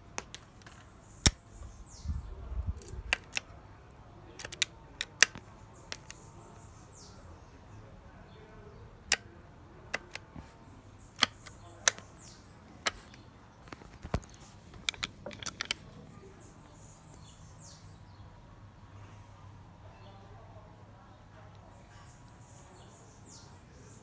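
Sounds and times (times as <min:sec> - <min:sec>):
rifle action metallic clicks: 0:02.8 - 0:03.5, 0:04.4 - 0:06.2, 0:09.9 - 0:10.3, 0:11.2 - 0:13.2, 0:14.0 - 0:15.8
faint bird chirps: 0:15.9 - 0:20.5.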